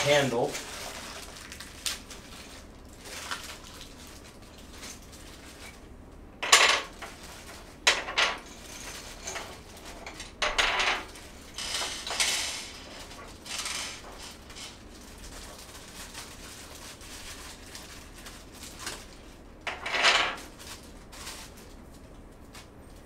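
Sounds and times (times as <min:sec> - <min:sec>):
hard objects knocking and clattering: 0:06.4 - 0:14.4.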